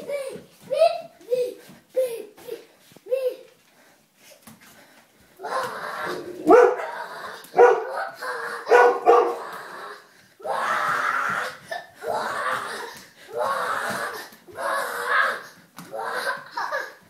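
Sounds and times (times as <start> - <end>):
loud vocal cries: 5.4 - 17.0.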